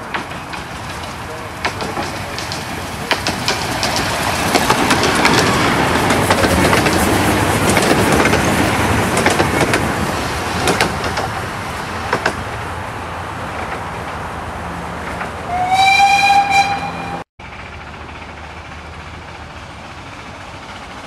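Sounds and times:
wheel clicks over rail joints: 0.0s - 9.9s
steam train rolling past: 0.0s - 21.0s.

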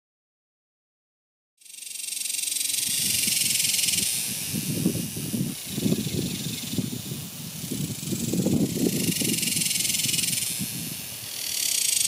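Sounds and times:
cicada buzzing: 1.6s - 12.0s.

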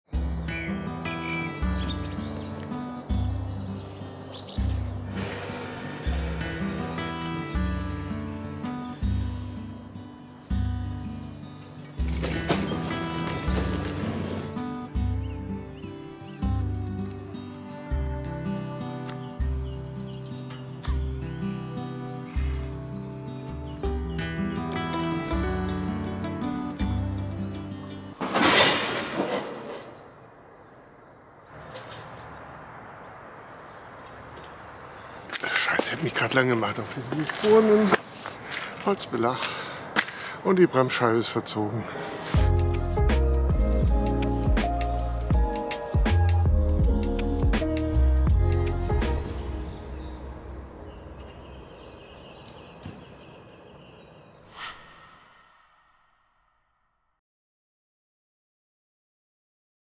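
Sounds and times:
steady outdoor hiss: 0.2s - 28.2s, 29.6s - 56.2s
bike sliding on wooden deck: 5.0s - 7.3s, 12.1s - 14.6s
short rushing swish: 54.5s - 56.1s.

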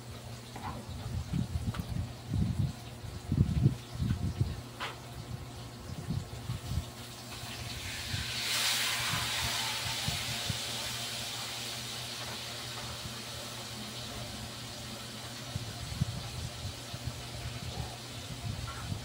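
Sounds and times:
broad hiss: 7.4s - 14.6s.

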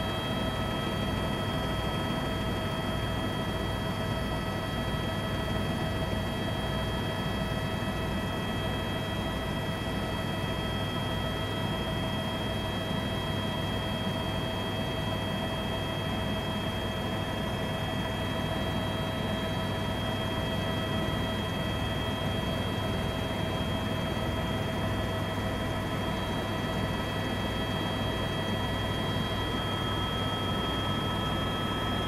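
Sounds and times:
pulsing rotor drone: 0.0s - 32.0s
turbine whine: 0.0s - 32.0s.

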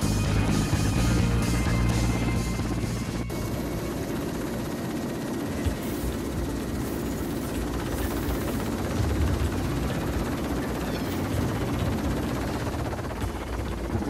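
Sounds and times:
helicopter hovering: 0.0s - 14.0s.

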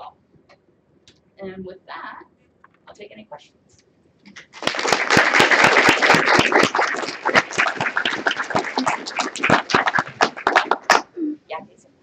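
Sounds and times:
audience applauding: 4.4s - 11.1s.

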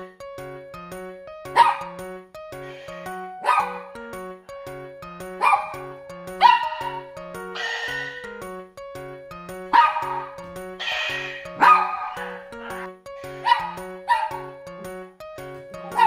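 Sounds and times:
light background music: 0.0s - 16.0s
dog barking: 1.6s - 2.0s, 3.3s - 4.0s, 5.4s - 8.3s, 9.7s - 12.6s, 13.4s - 14.5s, 15.8s - 16.0s.

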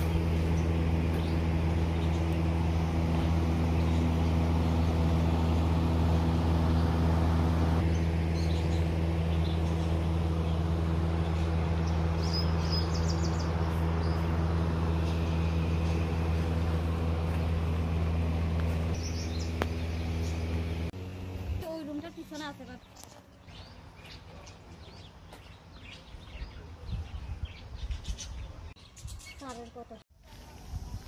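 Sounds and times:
machine humming: 0.0s - 22.8s
birds chirping: 0.0s - 30.0s.

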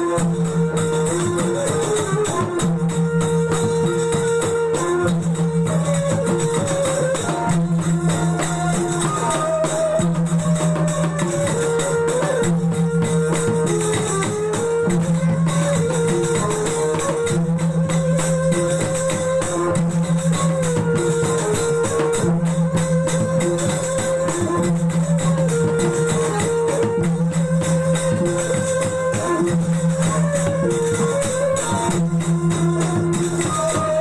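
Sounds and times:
jingling percussion: 0.0s - 34.0s.

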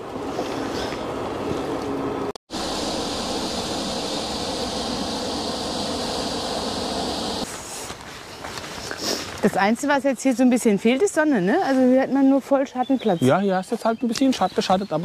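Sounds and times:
wind rushing: 2.5s - 7.5s.

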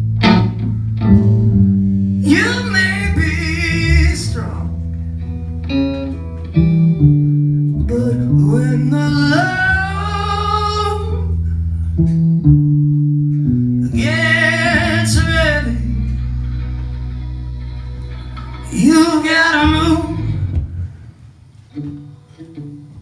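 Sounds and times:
guitar notes: 0.0s - 23.0s
man singing: 2.2s - 4.7s, 7.9s - 11.2s, 13.8s - 16.4s, 18.6s - 20.6s.

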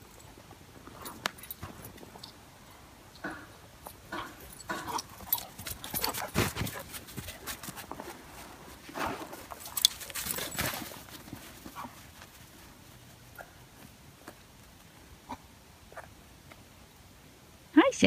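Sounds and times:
dogs scuffling: 3.8s - 14.8s.

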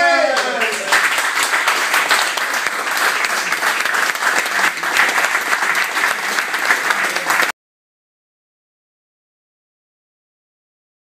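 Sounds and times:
spectators applauding: 0.0s - 7.6s.

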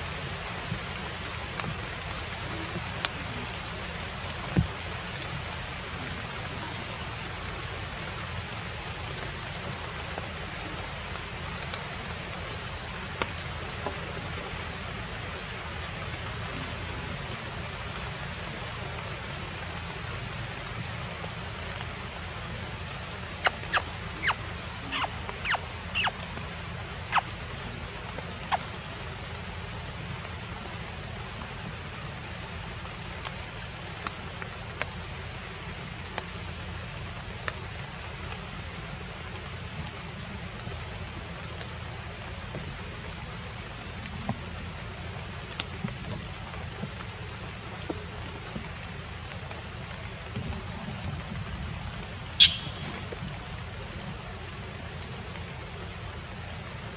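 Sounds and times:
forest ambience hiss: 0.0s - 56.9s
sharp clicks or chirps: 52.4s - 52.9s.

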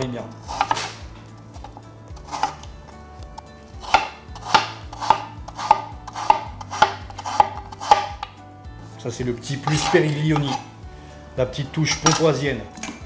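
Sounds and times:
knife chopping on cutting board: 0.5s - 2.7s, 3.7s - 8.3s, 9.6s - 10.7s.

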